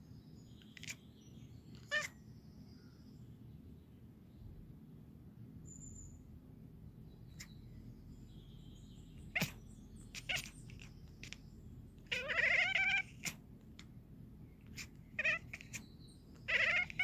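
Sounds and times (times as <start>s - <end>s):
faint high bird chirps: 0.0s - 4.6s, 5.6s - 6.3s, 6.9s - 13.4s, 14.4s - 17.0s
cat chattering: 0.6s - 1.1s, 1.8s - 2.2s, 9.1s - 17.0s.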